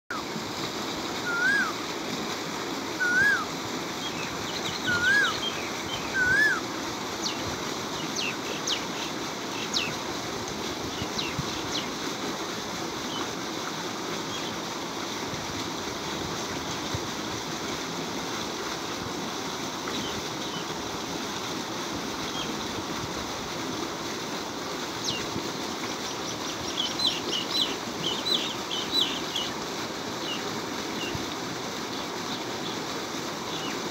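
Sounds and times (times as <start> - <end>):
water gushing into a tank: 0.1 - 33.9
bird whistles: 1.2 - 1.8, 3.0 - 3.5, 4.7 - 6.6.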